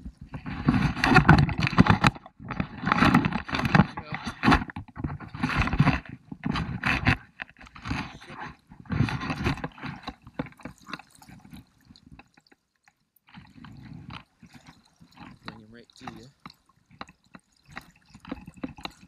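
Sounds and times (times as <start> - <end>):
river water splashing: 8.6 - 19.0.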